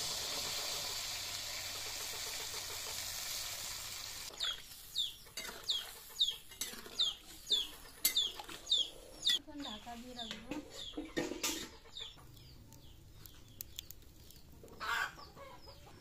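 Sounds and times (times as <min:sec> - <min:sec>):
water sizzling in hot pan: 0:00.0 - 0:08.2
metal spatula scraping pan: 0:05.3 - 0:08.6
chicken calling: 0:14.7 - 0:16.0.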